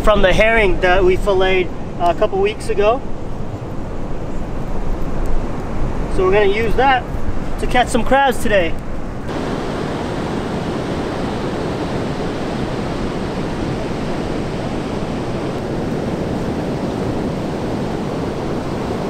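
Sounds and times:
ocean surf breaking: 9.0s - 19.0s.

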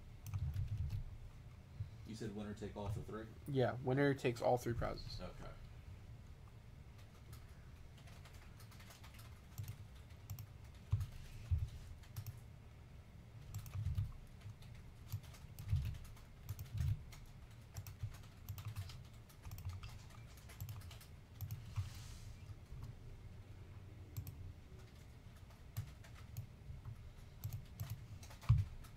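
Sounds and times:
typing on a computer keyboard: 0.2s - 1.1s, 6.9s - 12.4s, 13.4s - 21.8s, 24.2s - 28.9s.

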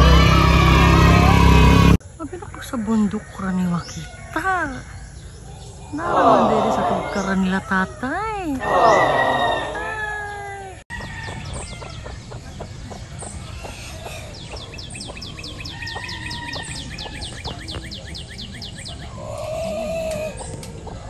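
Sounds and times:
birds chirping: 0.0s - 21.0s
rooster crowing: 8.6s - 12.0s, 15.6s - 17.1s.

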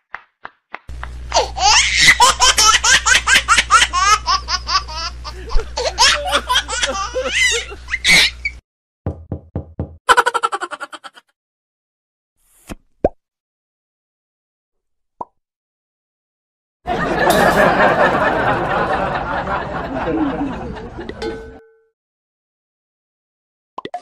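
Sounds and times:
high-pitched laughter: 1.3s - 8.6s, 10.1s - 11.3s.

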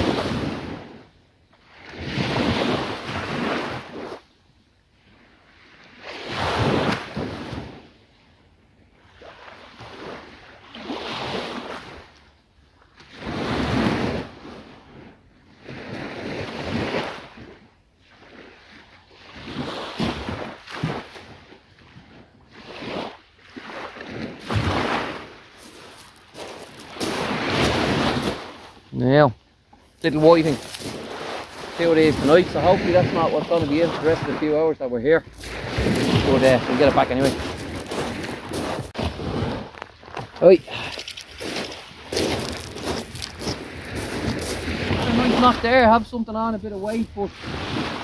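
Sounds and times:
surf rushing in surges: 0.0s - 0.9s, 22.6s - 29.3s, 30.0s - 39.7s, 41.4s - 48.0s
wind buffeting the microphone: 30.1s - 46.1s.

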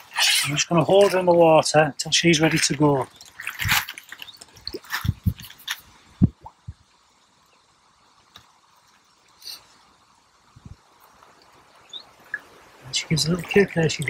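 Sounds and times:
wet sling rustling: 0.0s - 1.6s, 2.2s - 6.1s
water splashing: 0.0s - 14.0s.

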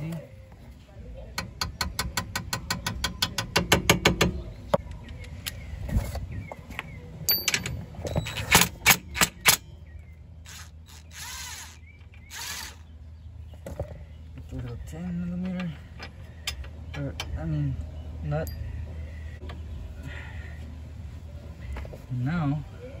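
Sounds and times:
cordless driver whirring: 10.5s - 12.8s.

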